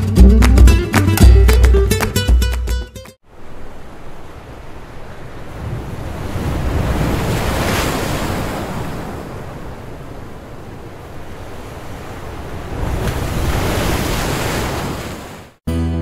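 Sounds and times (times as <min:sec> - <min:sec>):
waves breaking on beach: 0:03.2 - 0:15.6.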